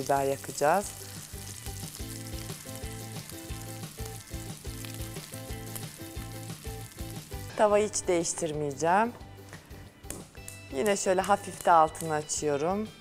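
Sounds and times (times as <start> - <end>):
meat sizzling in a pan: 0.0 - 7.6
background music with steady beat: 0.6 - 13.0.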